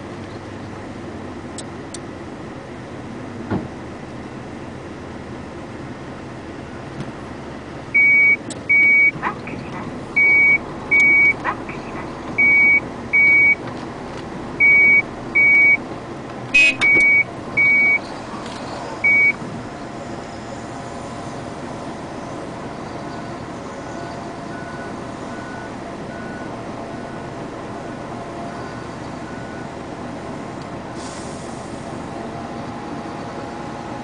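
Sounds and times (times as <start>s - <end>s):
low rumble of machinery: 0.0s - 34.0s
reversing alarm beeping: 8.0s - 9.2s, 10.2s - 11.4s, 12.4s - 13.6s, 14.6s - 15.8s, 16.6s - 18.0s, 19.0s - 19.4s, 24.0s - 27.3s.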